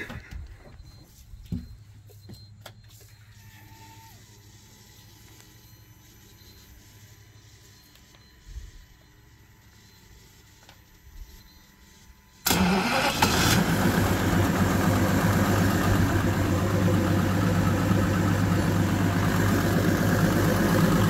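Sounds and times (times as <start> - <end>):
outboard motor starting and idling: 12.4 - 21.0.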